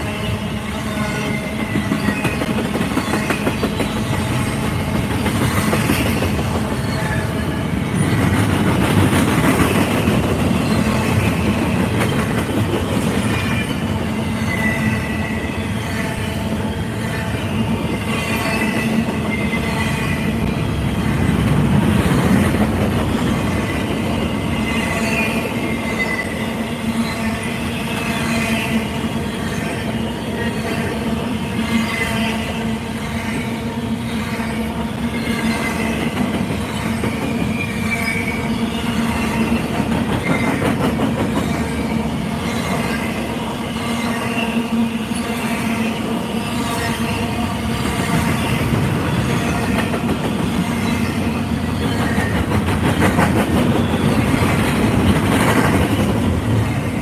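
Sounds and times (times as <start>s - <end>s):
freight train wheels rumbling: 0.0s - 57.0s
high wheel squeals: 23.2s - 30.8s, 34.0s - 52.4s.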